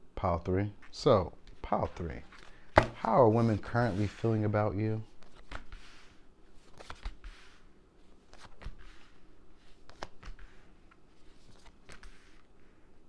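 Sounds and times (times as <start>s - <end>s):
cards tapped on table: 2.8s - 3.0s
cards swishing: 5.2s - 12.5s.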